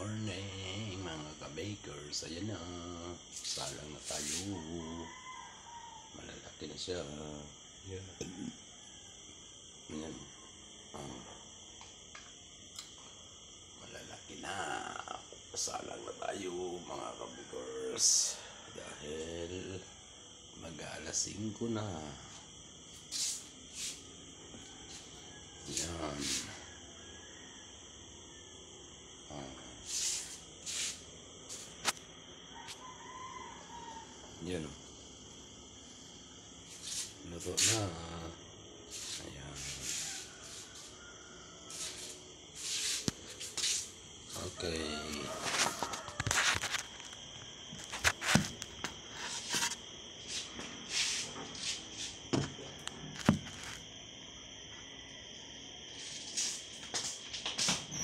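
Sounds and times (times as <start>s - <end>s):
insect chirring: 0.0s - 58.0s
hissing rustles: 29.9s - 32.0s, 38.9s - 41.0s
phone rustling against body: 45.4s - 47.0s, 47.8s - 48.6s.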